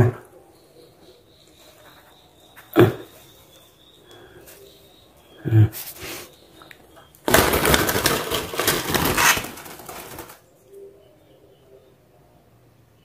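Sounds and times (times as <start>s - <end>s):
birds flapping wings: 7.2s - 10.4s
wire cage rattling: 7.3s - 10.4s.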